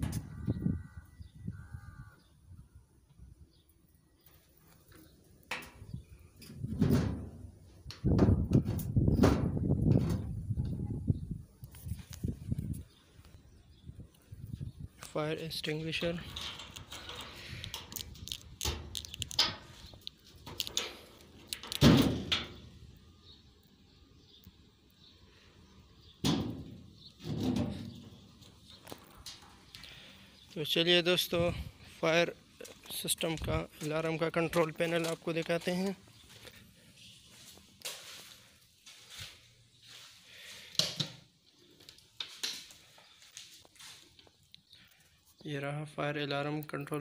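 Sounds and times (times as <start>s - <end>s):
footsteps walking: 28.3s - 29.9s, 31.8s - 40.7s, 42.3s - 44.4s.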